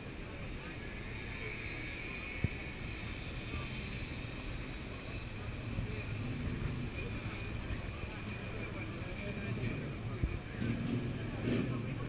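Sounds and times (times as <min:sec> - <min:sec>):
low rumble and hiss: 0:00.0 - 0:12.0.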